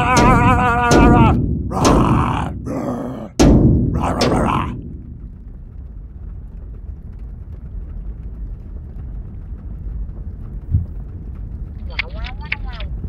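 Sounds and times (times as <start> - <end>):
crashing impact: 0.0 - 6.8
flames roaring: 0.0 - 11.8
fire crackling: 0.0 - 13.0.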